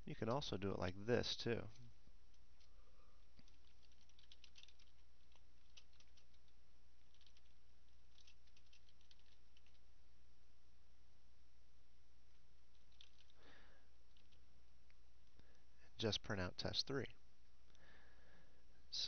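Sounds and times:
steady low hum: 0:00.0 - 0:19.0
keyboard typing: 0:02.3 - 0:09.8, 0:12.7 - 0:13.4, 0:14.1 - 0:14.4.

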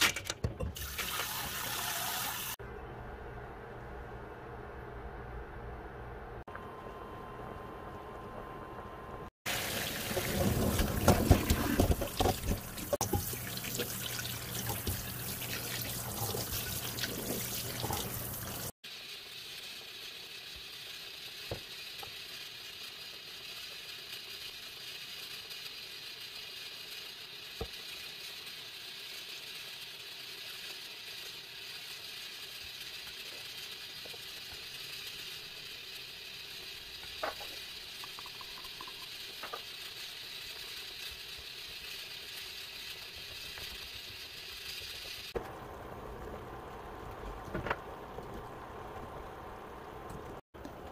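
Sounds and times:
chicken rubbed by hand in colander: 0:09.5 - 0:45.4.

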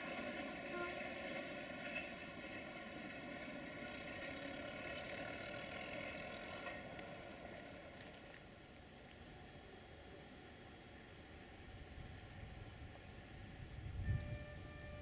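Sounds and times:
distant locomotive engine drone: 0:00.0 - 0:15.0.

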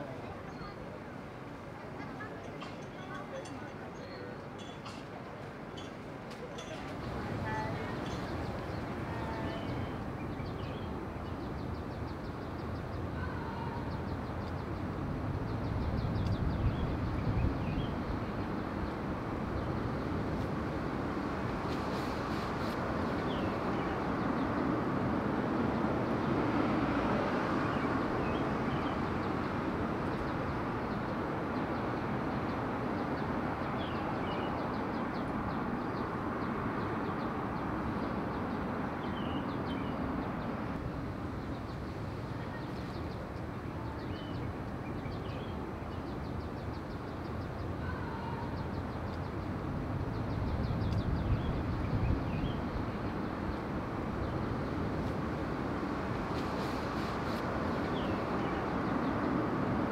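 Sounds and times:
background hubbub: 0:00.0 - 0:17.0, 0:20.8 - 0:51.4.

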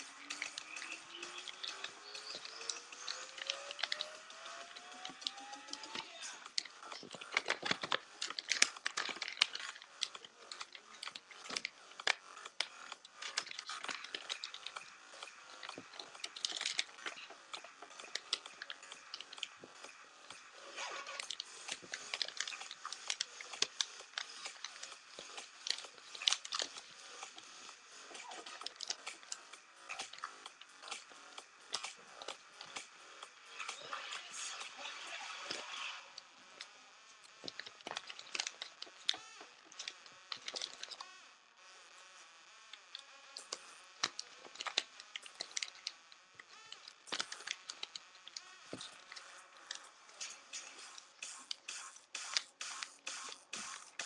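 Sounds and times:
paper folding and crinkling: 0:00.0 - 0:19.8, 0:20.6 - 0:31.0, 0:37.3 - 0:41.1, 0:42.8 - 0:51.6.

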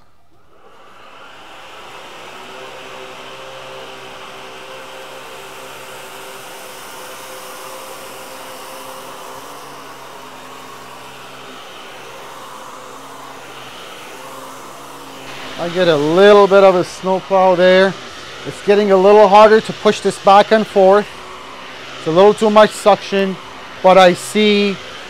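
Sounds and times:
stick vacuum running on carpet: 0:00.3 - 0:25.0.

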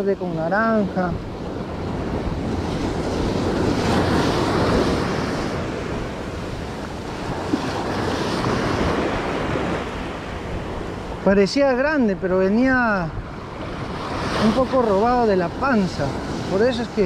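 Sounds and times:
ocean surf breaking: 0:00.0 - 0:17.0.

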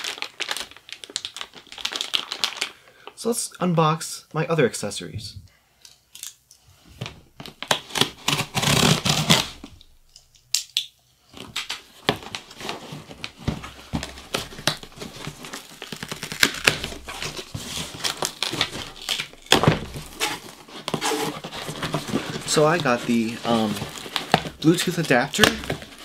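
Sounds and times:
packaging rustling and crinkling: 0:00.0 - 0:03.2, 0:11.3 - 0:26.0
cardboard box opening: 0:12.2 - 0:26.0.

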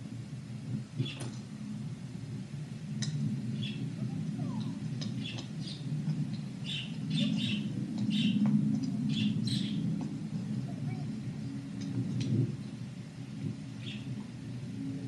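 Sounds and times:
steady low rumble: 0:00.0 - 0:15.0
small birds chirping: 0:03.6 - 0:05.9, 0:06.6 - 0:11.5, 0:13.8 - 0:14.1.

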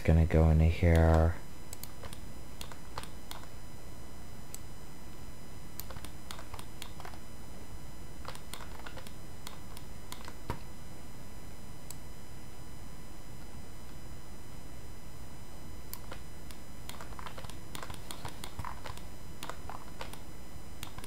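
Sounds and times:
steady low hum: 0:00.0 - 0:21.0
keyboard and mouse clicks: 0:00.9 - 0:03.6, 0:05.8 - 0:07.2, 0:08.2 - 0:10.6, 0:15.9 - 0:21.0.

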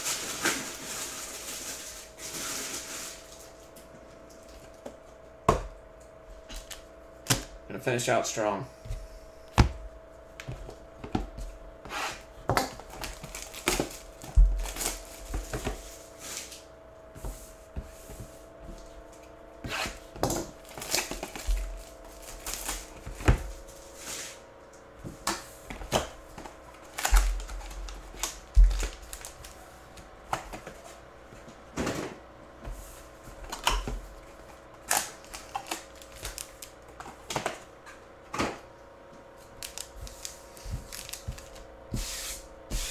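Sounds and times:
faint steady hum: 0:00.0 - 0:42.9
cardboard and wrappers crinkling: 0:12.8 - 0:15.8, 0:20.6 - 0:23.2, 0:26.8 - 0:29.6, 0:34.8 - 0:36.8, 0:39.5 - 0:41.7.

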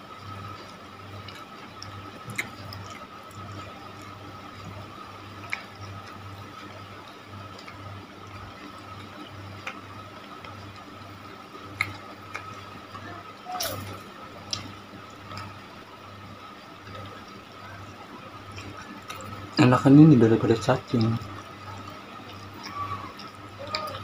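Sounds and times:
person chewing food: 0:00.6 - 0:09.8, 0:11.8 - 0:12.8.

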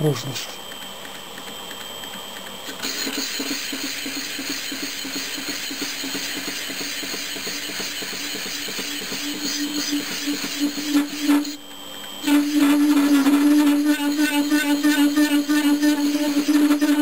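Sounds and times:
metal lathe humming: 0:12.2 - 0:17.0.

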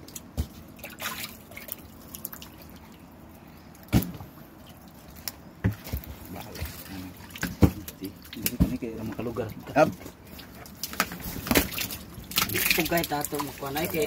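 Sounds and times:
water splashing and dripping: 0:00.0 - 0:14.0
fish flapping in water: 0:10.2 - 0:14.0.

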